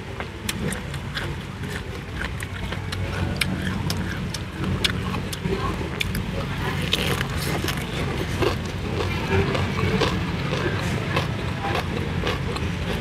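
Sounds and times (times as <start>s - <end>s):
close-up chewing: 0.0s - 13.0s.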